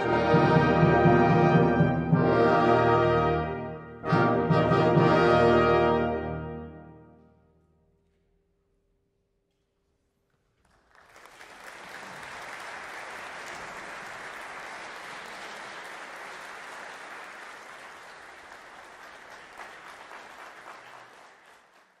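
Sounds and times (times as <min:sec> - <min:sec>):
audience applauding: 0:10.6 - 0:22.0.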